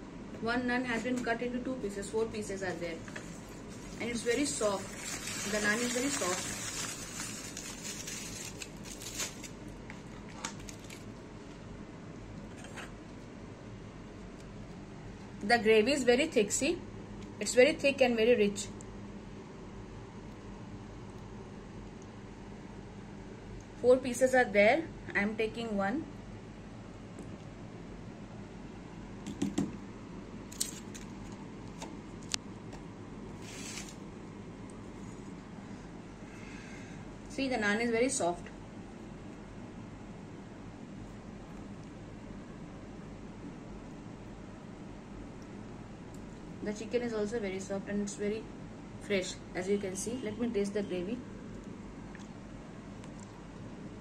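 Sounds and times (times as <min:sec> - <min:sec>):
aluminium foil crinkling: 0:03.0 - 0:11.2, 0:33.4 - 0:34.0.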